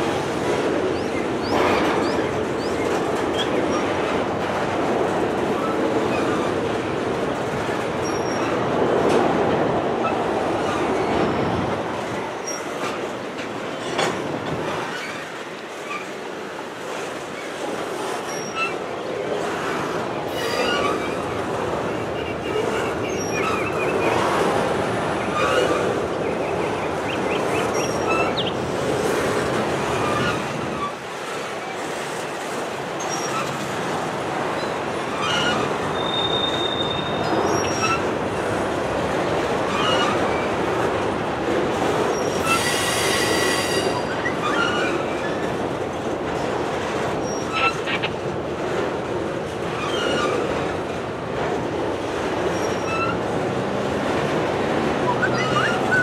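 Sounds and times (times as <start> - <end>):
steel wheels rumbling on rail: 0.0 - 56.0
train wheel squeals: 8.0 - 8.6, 12.4 - 12.7, 18.2 - 18.8, 20.3 - 21.4, 22.2 - 24.4, 25.2 - 26.0, 27.3 - 28.5, 29.9 - 31.0, 33.0 - 33.6, 34.6 - 38.1, 39.7 - 40.6, 42.1 - 45.5, 49.8 - 50.5, 52.5 - 53.2, 55.0 - 56.0.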